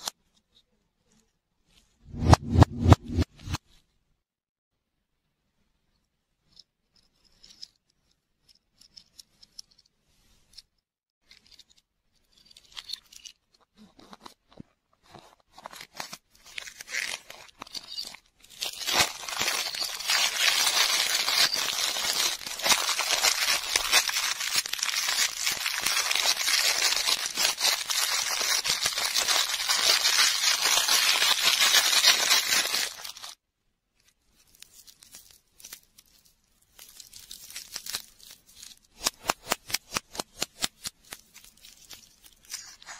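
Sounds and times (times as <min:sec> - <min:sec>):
plastic wrapper crackling: 0:16.5 - 0:33.4, 0:34.4 - 0:42.9.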